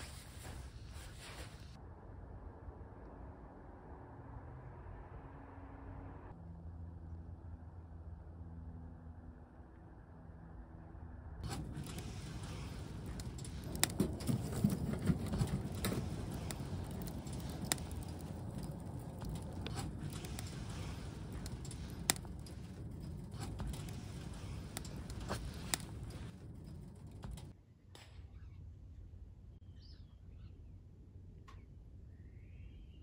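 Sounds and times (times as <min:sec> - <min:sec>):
wood fire crackling: 0:11.4 - 0:27.6.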